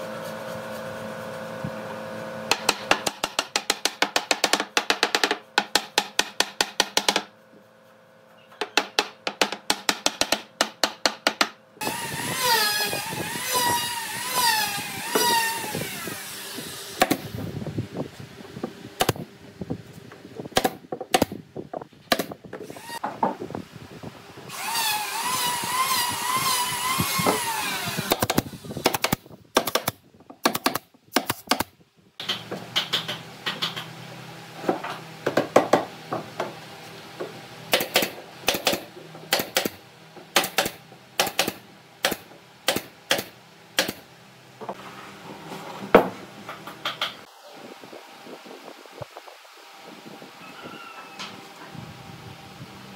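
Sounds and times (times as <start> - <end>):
sharp clicks and knocks: 28.1 - 33.9.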